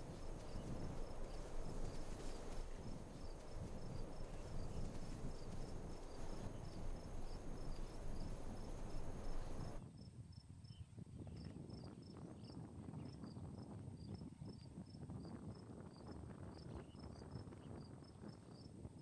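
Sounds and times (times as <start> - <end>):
crickets chirping: 0.0 - 9.8
low rumbling noise: 0.0 - 9.8.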